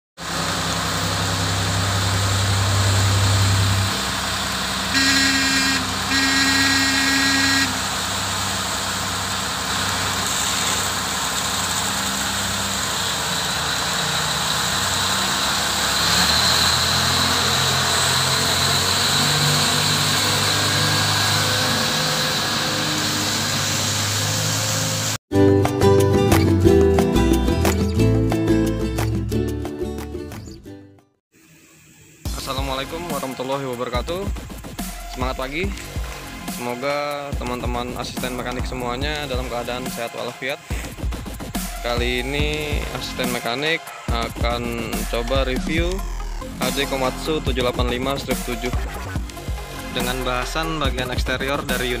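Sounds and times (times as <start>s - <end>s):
diesel truck engine idling: 0.2s - 25.2s
truck horn blasts: 4.6s - 8.6s, 14.3s - 25.0s.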